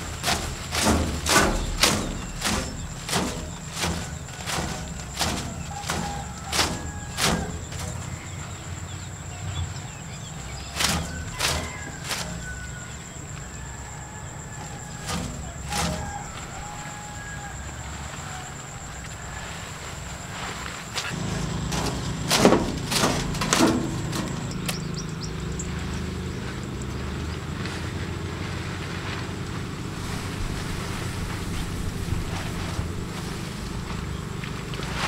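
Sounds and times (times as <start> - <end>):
plastic streamers cracking: 0.0 - 8.3
wind rumble on microphone: 0.0 - 35.0.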